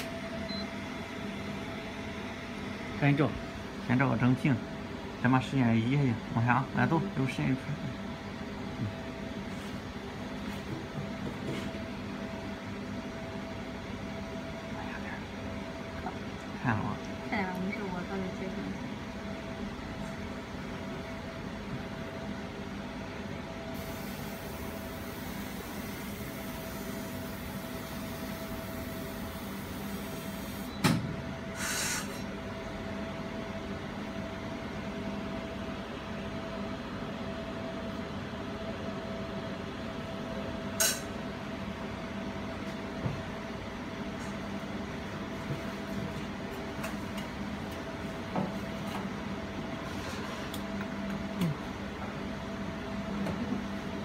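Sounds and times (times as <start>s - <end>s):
laser welder humming drone: 23.6s - 30.8s.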